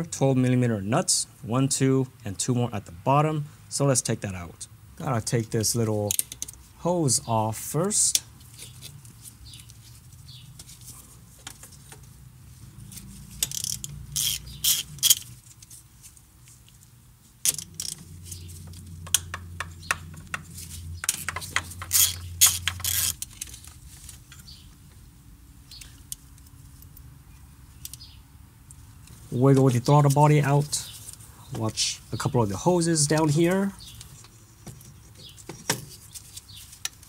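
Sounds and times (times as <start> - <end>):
hand socket ratchet clicking: 13.4 - 15.3, 21.1 - 23.3.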